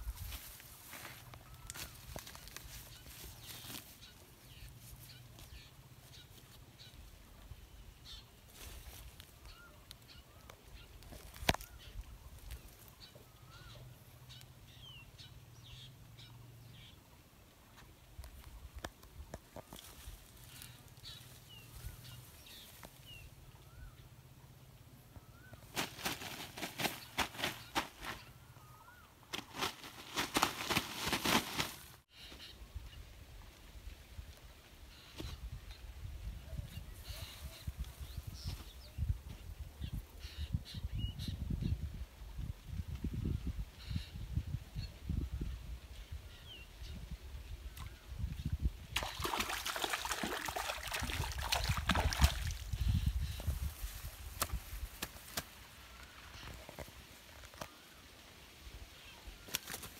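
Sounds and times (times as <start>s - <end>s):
crackling rustle: 0.0s - 6.9s, 8.5s - 13.1s, 29.3s - 32.1s
distant bird calls: 0.0s - 17.2s, 19.5s - 30.7s.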